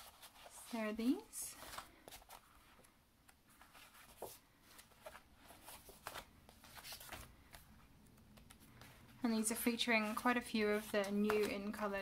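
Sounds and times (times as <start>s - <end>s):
card stock rustling and tapping: 1.6s - 12.0s.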